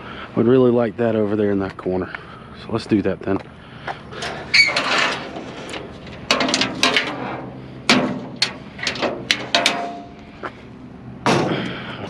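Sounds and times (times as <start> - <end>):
metal scraping on wood: 4.1 - 10.2
metal clanks and knocks: 4.2 - 10.2, 11.2 - 11.8.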